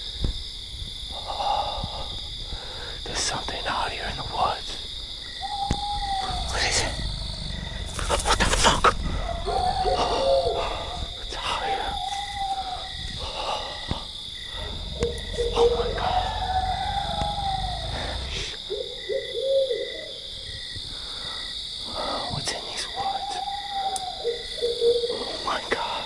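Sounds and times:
high-pitched insect chorus: 0.0 - 26.0
owl hooting: 5.4 - 8.4, 9.2 - 13.0, 14.5 - 20.2, 22.3 - 25.6
low rumble: 6.0 - 9.9, 14.2 - 18.6.

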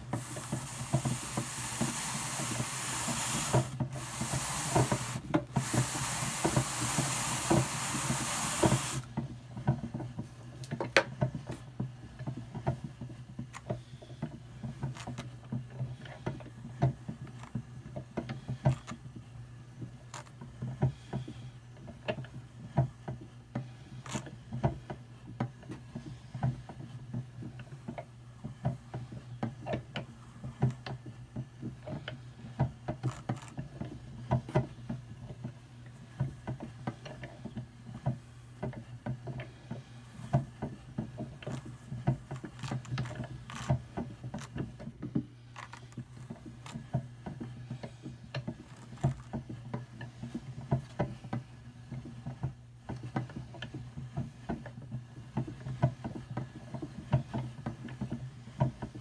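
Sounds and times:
drum carder drums humming: 0.0 - 9.2.

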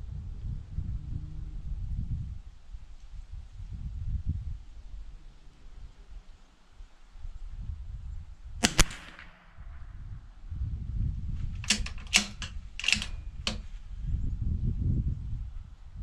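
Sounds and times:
rifle bolt clicking: 8.6 - 9.3, 11.6 - 13.8
rifle shots: 8.6 - 9.8, 11.6 - 13.7.

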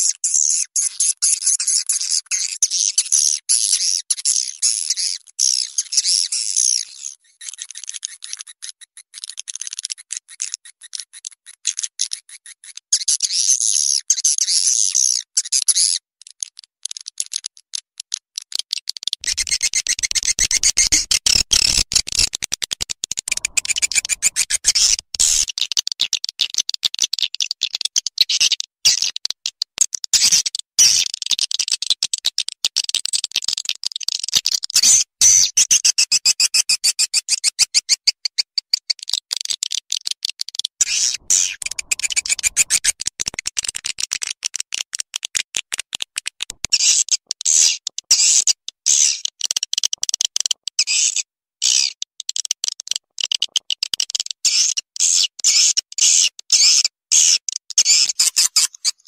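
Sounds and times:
deeper fuller bird layer: 19.2 - 22.2, 23.3 - 25.5, 40.8 - 43.4
swiftlets chirping and twittering: 19.2 - 22.3, 23.3 - 25.5, 40.8 - 43.4.

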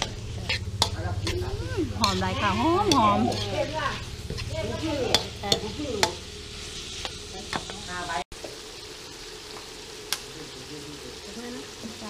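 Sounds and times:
metal spatula scraping a wok: 0.0 - 8.2
food sizzling in a pan: 0.0 - 12.0.

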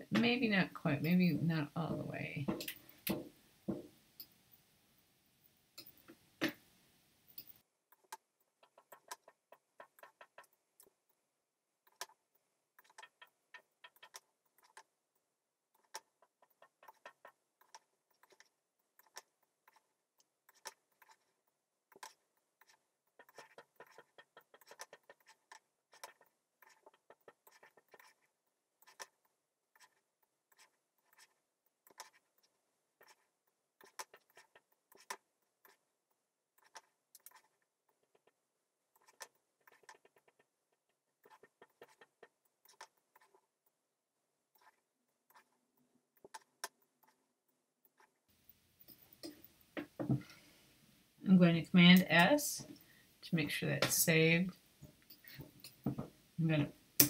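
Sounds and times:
mouse and keyboard clicking: 12.8 - 14.9.

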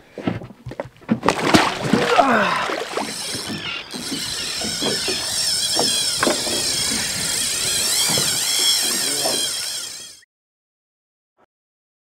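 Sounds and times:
boat motor running: 0.7 - 10.2
irregular knocks: 3.0 - 9.8.

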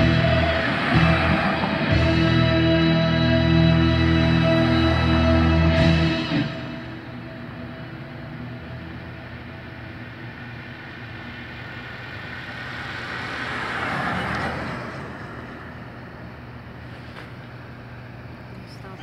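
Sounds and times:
car passing by: 0.0 - 7.1, 11.3 - 17.4
steady low hum: 0.0 - 13.5, 15.0 - 19.0.

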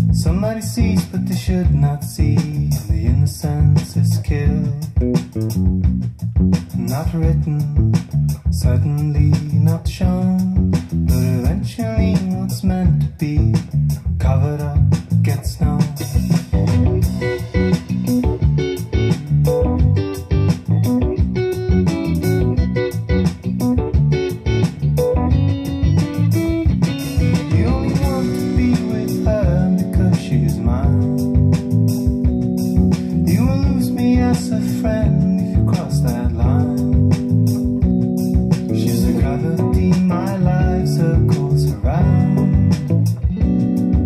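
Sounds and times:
bass: 0.0 - 44.0
plucked guitar: 0.0 - 44.0
person singing: 27.0 - 31.7, 32.9 - 37.5, 38.6 - 43.3.

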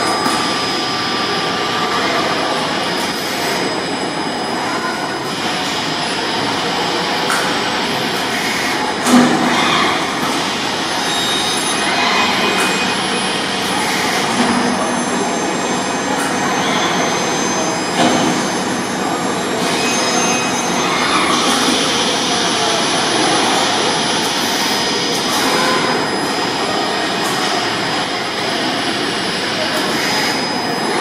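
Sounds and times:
rushing machine noise: 0.0 - 31.0.

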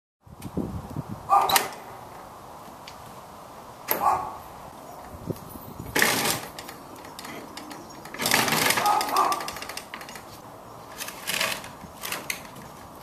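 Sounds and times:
metal gate latch clacking: 1.4 - 1.9, 3.9 - 4.2, 6.0 - 10.3
gate scraping on ground: 5.8 - 13.0.

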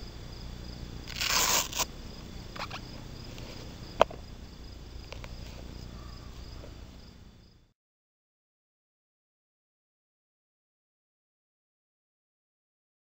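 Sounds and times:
insect chirring: 0.0 - 7.6
velcro straps ripping open: 1.1 - 1.9.

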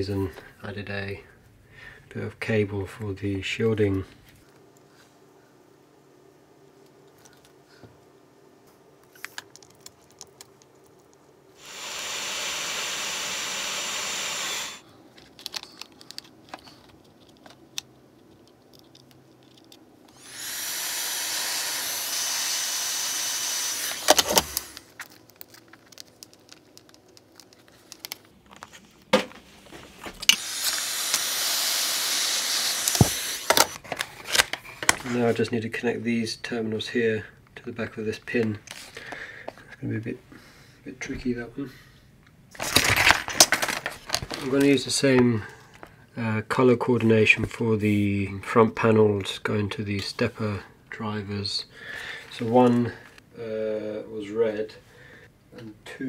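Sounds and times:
hot air gun blowing: 11.6 - 14.8, 20.1 - 24.9, 30.3 - 33.8.

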